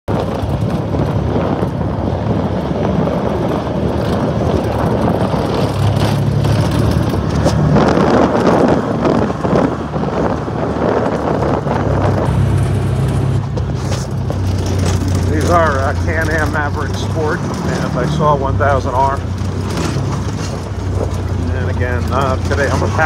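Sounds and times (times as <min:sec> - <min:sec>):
vehicle engine running: 0:00.1 - 0:23.0
wind on microphone: 0:00.1 - 0:23.0.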